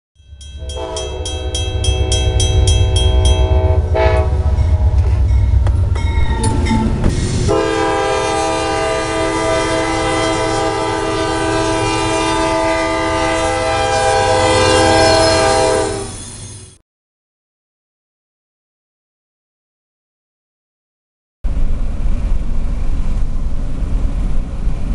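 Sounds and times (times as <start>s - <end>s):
bell ringing: 0.2s - 7.0s
train rumble: 0.2s - 16.8s, 21.5s - 24.9s
locomotive air horn: 0.6s - 5.6s, 7.4s - 16.2s.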